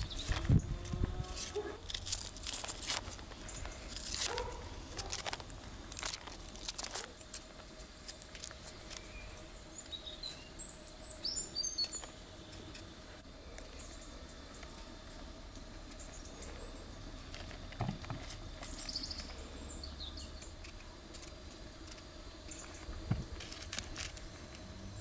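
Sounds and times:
small bird chirping: 0.0s - 0.8s, 8.8s - 12.1s, 18.6s - 20.7s
knife scraping potato skin: 0.0s - 9.2s, 20.4s - 24.2s.

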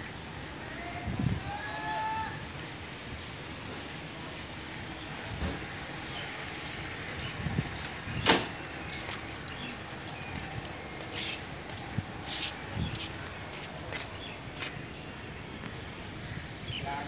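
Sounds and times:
steady hissing noise: 0.0s - 17.0s
short sharp hiss: 5.3s - 9.7s.

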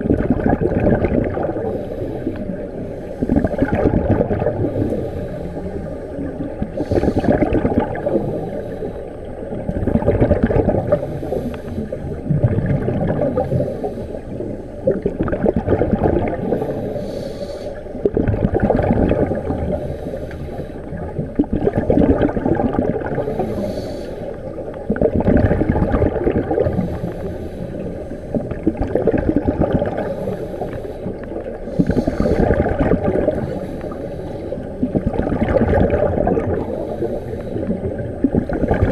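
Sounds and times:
underwater bubbles gurgling: 0.0s - 38.9s
regulator breath hiss: 6.8s - 7.4s, 8.1s - 9.2s, 16.5s - 18.0s, 19.7s - 21.0s, 23.2s - 24.6s, 26.7s - 28.4s, 30.0s - 32.6s, 33.3s - 34.7s, 36.6s - 37.8s.

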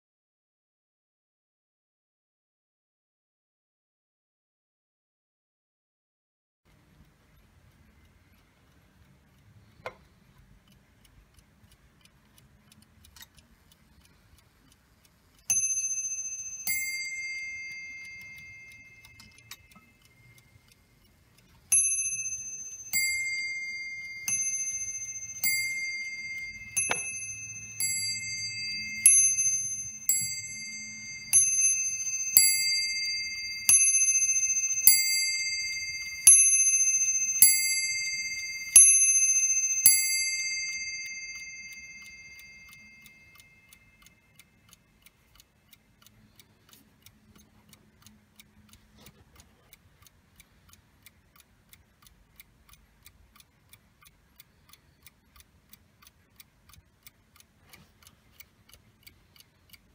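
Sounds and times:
clock ticking: 6.7s - 59.9s
clock striking on bell: 15.5s - 19.7s, 21.7s - 43.6s.

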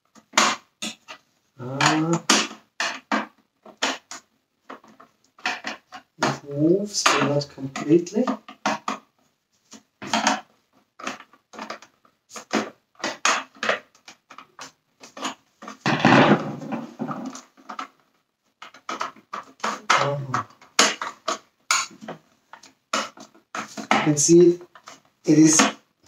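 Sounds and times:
plastic scrape: 9.6s - 18.0s.

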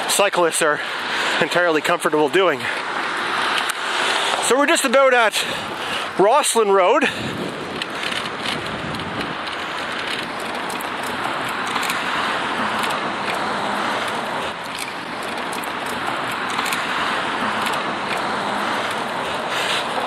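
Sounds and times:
cars passing: 0.0s - 20.0s.

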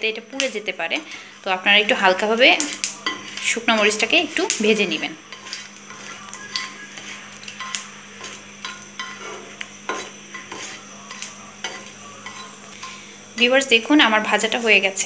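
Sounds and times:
chillies sizzling in oil: 0.0s - 15.0s
spatula scraping and tapping pan: 1.9s - 13.1s.

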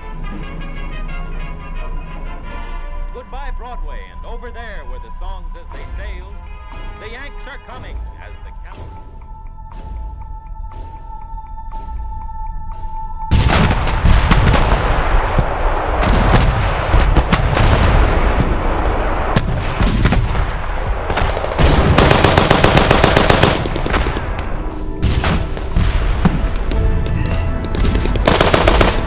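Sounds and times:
sustained music: 0.0s - 29.0s
gunfire with heavy booms: 13.3s - 27.0s, 27.6s - 29.0s
machine-gun fire: 13.4s - 26.6s, 27.7s - 29.0s.

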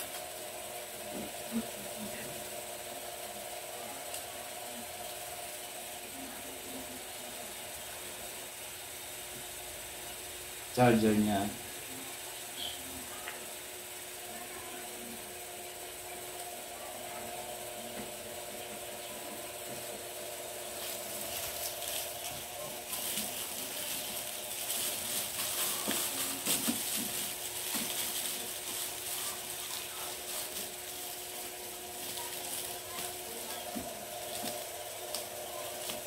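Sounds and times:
plastic film crinkling: 19.1s - 36.0s.

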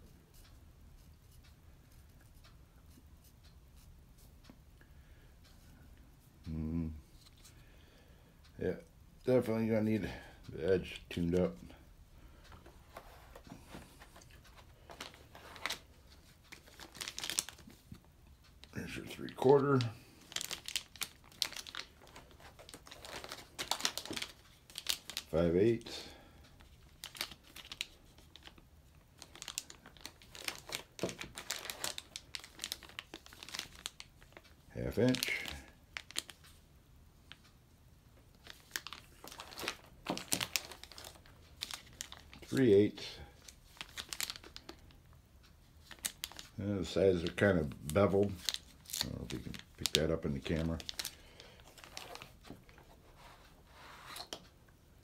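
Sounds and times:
plastic sleeve crinkling: 12.9s - 18.0s, 18.6s - 36.6s, 38.3s - 45.0s, 45.8s - 54.5s.

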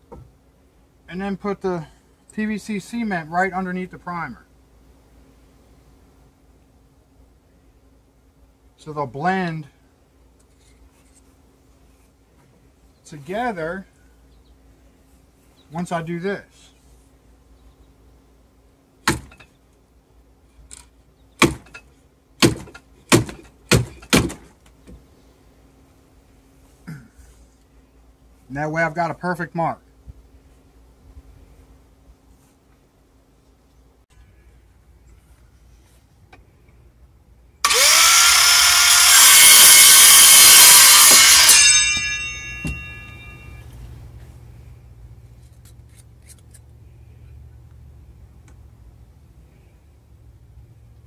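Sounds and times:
power saw cutting pipe: 37.6s - 43.3s
saw blade spinning down: 37.6s - 43.6s.

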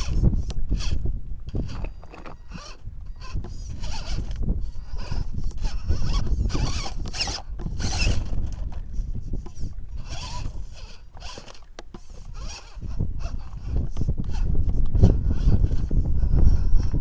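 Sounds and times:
electric motor whining: 0.0s - 17.0s.

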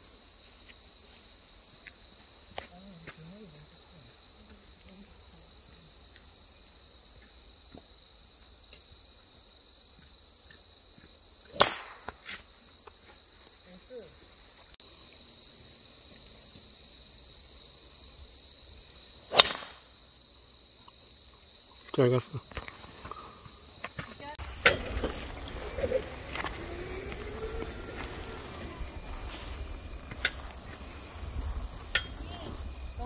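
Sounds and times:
night insects chorus: 0.0s - 33.0s
golf club striking ball: 19.3s - 19.8s, 24.6s - 25.8s.

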